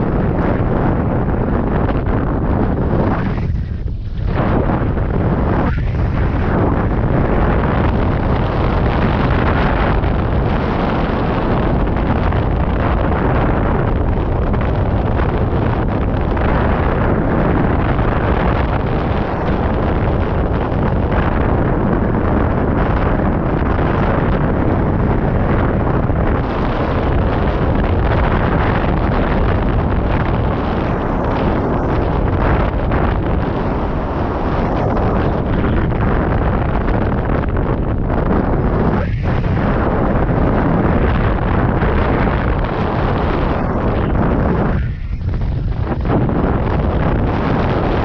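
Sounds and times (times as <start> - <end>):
deep rumble: 0.0 - 48.0
wind buffeting microphone: 0.0 - 48.0.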